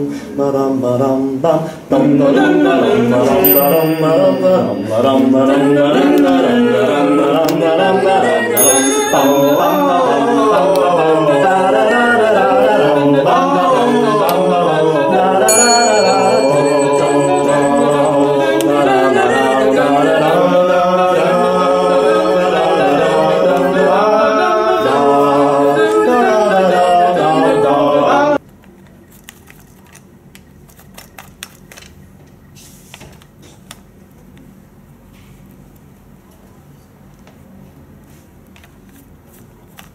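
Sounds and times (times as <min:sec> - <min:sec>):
voices singing a cappella: 0:00.0 - 0:28.4
high bell ringing: 0:03.4 - 0:06.2, 0:08.5 - 0:10.8, 0:15.5 - 0:19.8.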